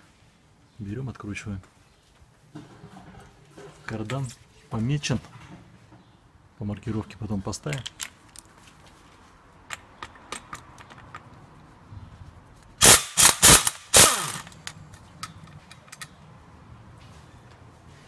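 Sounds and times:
impact wrench hammering: 12.8s - 14.6s
impact wrench motor winding down: 12.8s - 14.6s.

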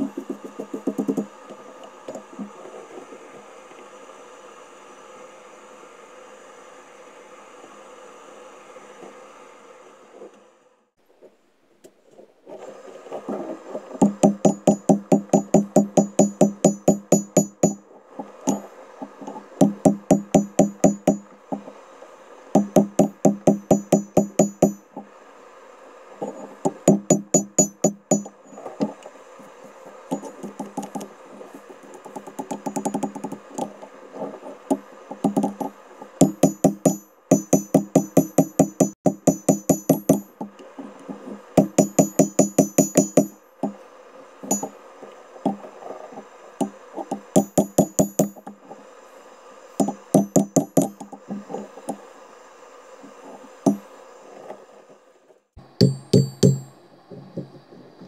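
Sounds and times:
hammer striking steel on anvil: 14.0s - 17.8s, 19.6s - 21.3s, 22.6s - 24.9s, 26.9s - 28.4s, 36.2s - 40.4s, 41.6s - 43.4s, 44.5s - 44.8s, 47.4s - 48.4s, 49.8s - 51.0s, 55.8s - 56.8s.

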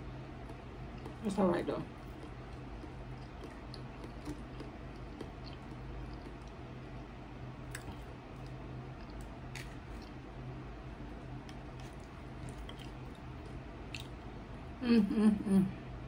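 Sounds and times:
steady low hum: 0.0s - 16.0s
chewing food: 0.3s - 6.6s, 7.6s - 10.2s, 11.3s - 14.3s.

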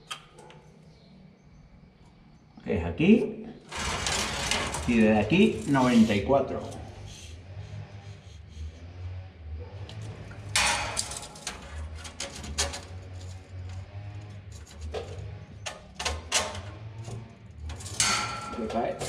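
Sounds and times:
tape measure scraping rustle: 3.7s - 7.2s.

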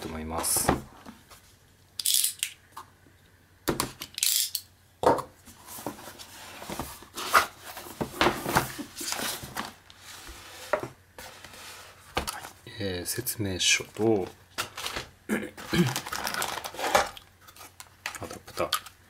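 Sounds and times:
plastic bags rustling and clicking: 14.0s - 18.9s.

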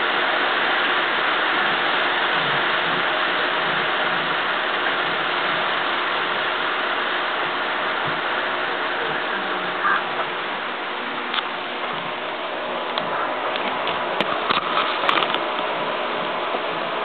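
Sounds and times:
model train whirring on track: 0.0s - 17.0s.

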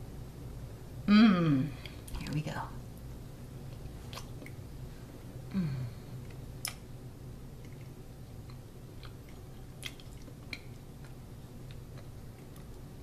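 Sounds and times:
people chewing soft pastries: 3.6s - 13.0s.

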